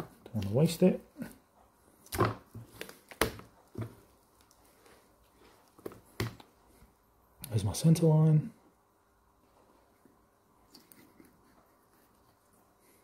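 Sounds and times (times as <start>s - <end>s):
soft handling sounds: 0.0s - 7.2s.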